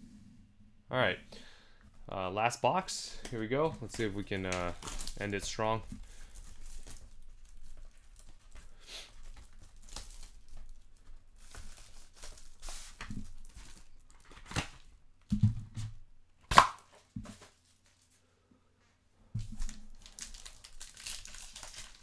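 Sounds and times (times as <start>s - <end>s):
wrapping tearing and crinkling: 3.3s - 14.9s, 17.4s - 18.2s, 19.4s - 22.0s.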